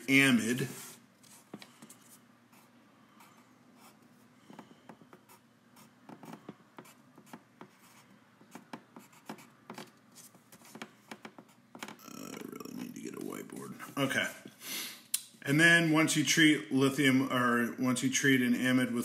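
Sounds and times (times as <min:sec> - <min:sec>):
pen scratching on paper: 0:00.8 - 0:10.8.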